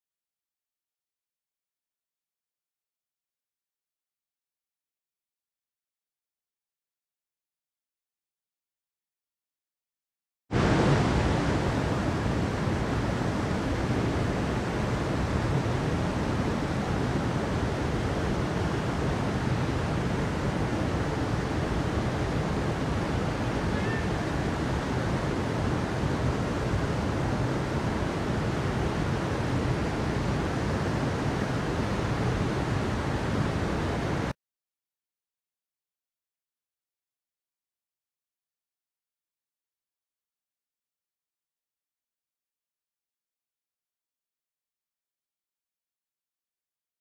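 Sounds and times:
stream rushing over rocks: 10.6s - 34.3s.

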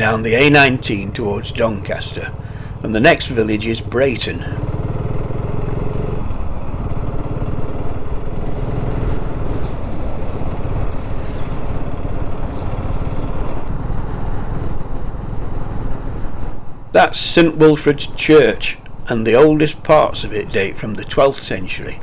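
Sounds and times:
motorcycle engine running: 0.0s - 16.9s.

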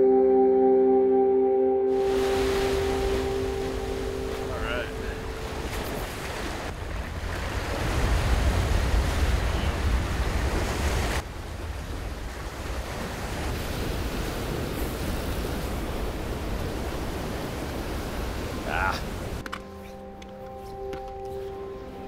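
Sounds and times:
ocean surf against rocks: 1.9s - 19.6s
wind buffeting microphone: 2.1s - 19.4s.

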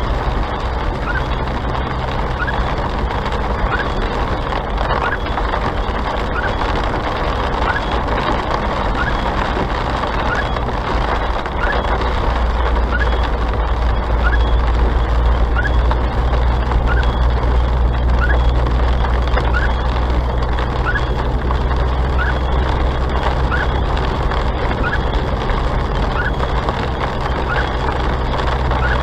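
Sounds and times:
engine and road hum: 0.0s - 29.0s
short rising squeak: 16.9s - 17.3s.

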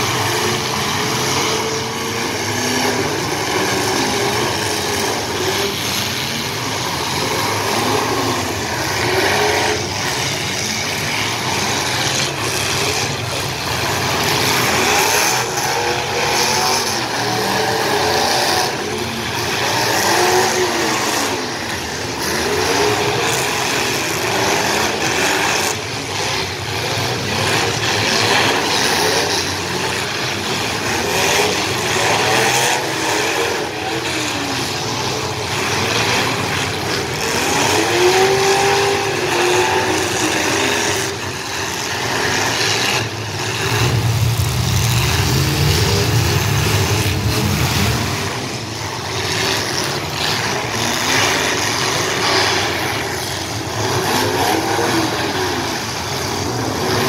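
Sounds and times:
car engines revving: 0.0s - 57.0s
heavy low rumble: 43.2s - 49.2s.

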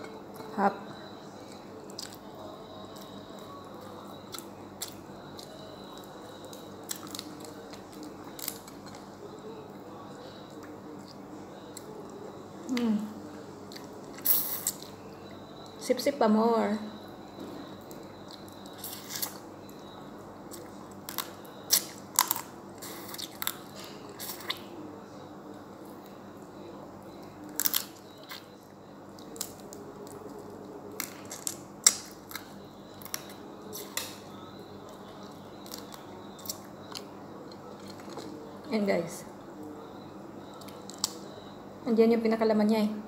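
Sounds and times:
chewing: 1.4s - 15.0s, 17.8s - 19.9s, 20.5s - 24.7s, 34.8s - 38.4s.

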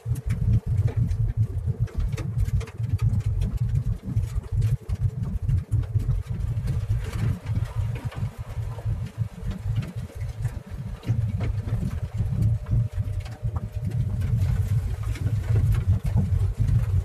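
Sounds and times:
faint clicks and ticks: 0.0s - 17.0s
road and engine rumble: 0.0s - 17.0s.

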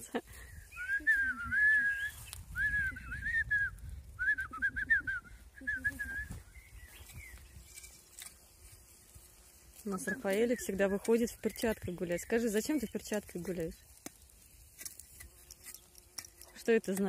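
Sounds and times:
person whistling birdsong: 0.4s - 7.4s, 9.9s - 13.0s.

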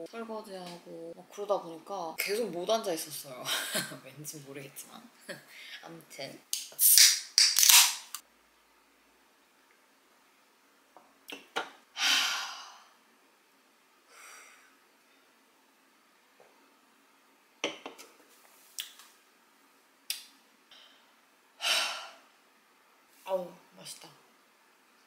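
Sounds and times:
woman sighing ahh: 12.0s - 12.9s, 21.6s - 22.2s
soft breath: 14.1s - 15.3s.

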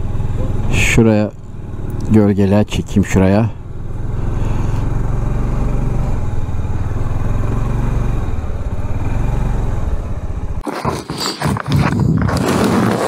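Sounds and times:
scooter engine rumbling: 0.0s - 13.0s.

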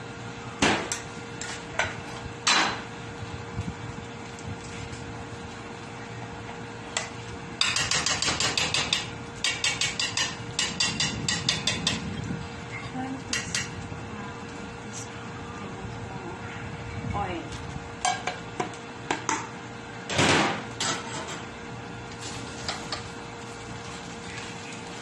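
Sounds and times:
rapid metallic tapping in pot: 7.6s - 12.1s, 13.3s - 13.8s.

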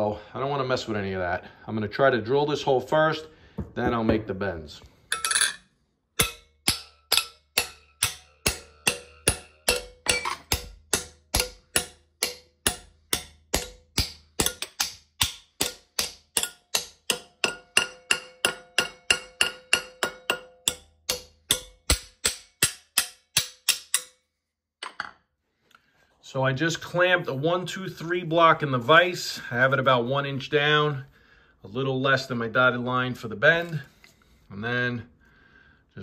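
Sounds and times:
hammer striking metal plate: 6.2s - 24.2s.

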